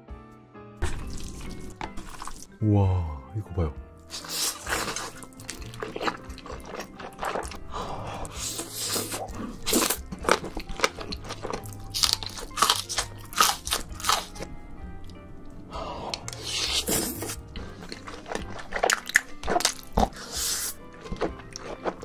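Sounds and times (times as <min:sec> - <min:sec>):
soft background music: 0:00.0 - 0:22.0
chewing with crunchy bites: 0:00.8 - 0:02.5, 0:04.1 - 0:15.2, 0:15.9 - 0:22.0
noodle slurping: 0:04.1 - 0:11.4, 0:16.0 - 0:22.0.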